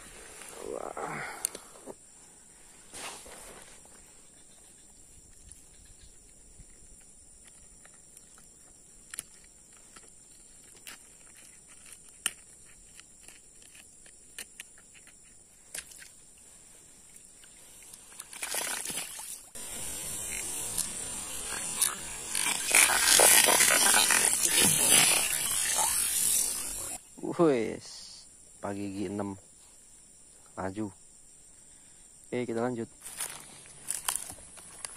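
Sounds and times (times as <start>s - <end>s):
fish splashing in shallow water: 17.9s - 19.6s.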